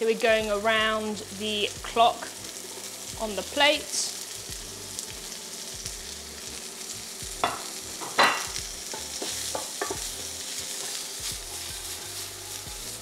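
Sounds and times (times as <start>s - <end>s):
vegetables sizzling in oil: 0.0s - 13.0s
wooden spoon knocking on pan: 7.4s - 10.1s.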